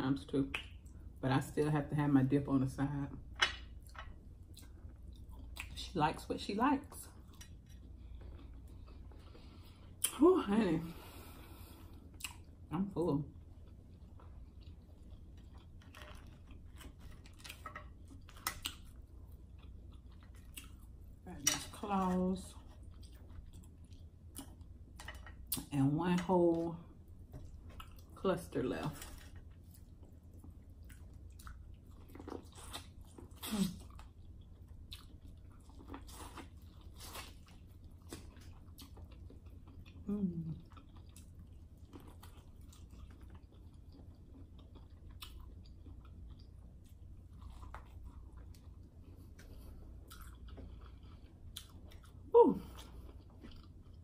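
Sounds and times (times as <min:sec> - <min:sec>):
chewing and wet mouth smacks: 0:12.1 - 0:12.6, 0:13.6 - 0:21.0, 0:29.3 - 0:54.0.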